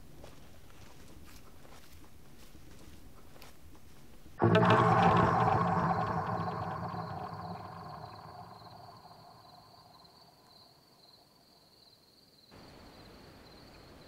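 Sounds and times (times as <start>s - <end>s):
film music: 4.4s - 10.1s.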